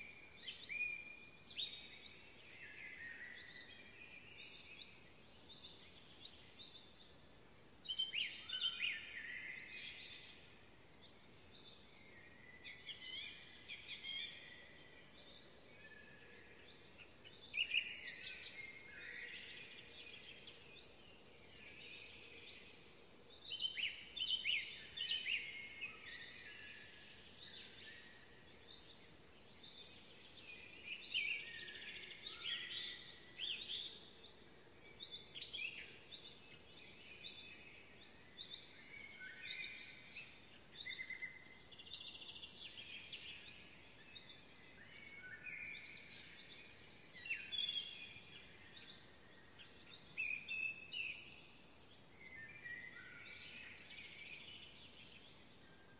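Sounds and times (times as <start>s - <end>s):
faint outdoor background noise: 0.0s - 55.9s
songbird singing: 0.0s - 55.9s.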